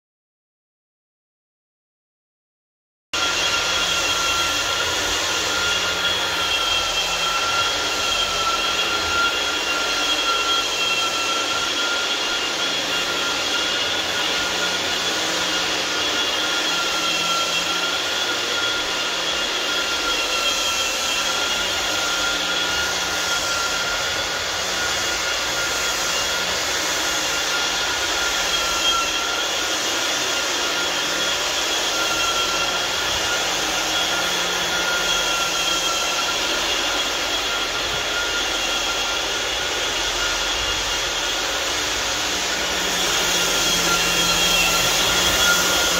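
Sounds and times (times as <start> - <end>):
dust extractor whining: 3.2 - 45.9.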